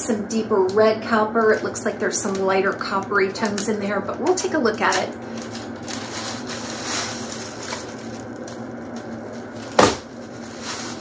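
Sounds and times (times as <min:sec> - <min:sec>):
paper rustling and crinkling: 0:04.9 - 0:11.0.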